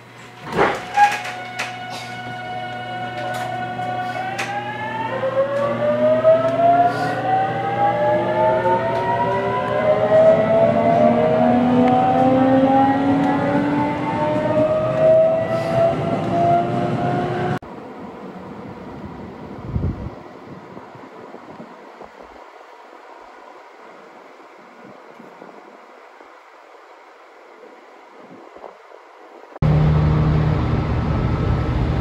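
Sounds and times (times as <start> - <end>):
train motors whining: 0.0 - 17.6
train rumble: 0.0 - 32.0.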